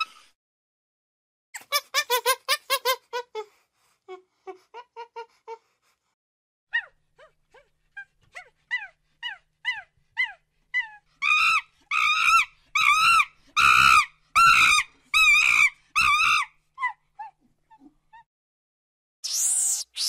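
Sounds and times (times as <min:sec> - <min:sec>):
monkey harsh calls: 0:11.2 - 0:16.5.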